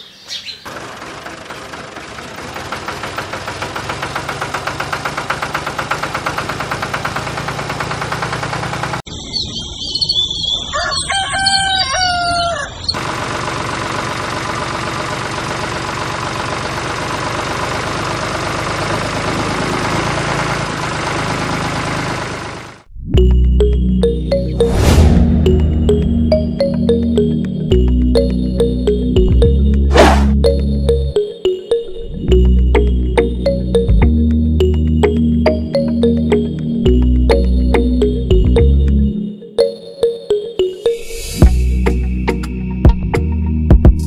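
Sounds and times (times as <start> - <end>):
rooster crowing: 10.7 - 13.0.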